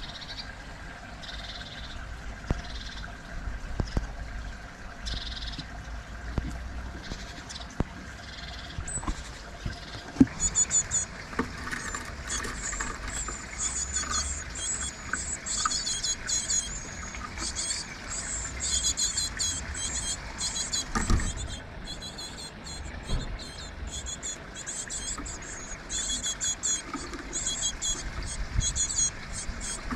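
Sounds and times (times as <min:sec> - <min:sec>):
great tits chattering calls: 0:00.0 - 0:00.5, 0:01.2 - 0:03.1, 0:05.0 - 0:05.7, 0:06.9 - 0:29.9
sharp knocks: 0:23.1 - 0:23.4.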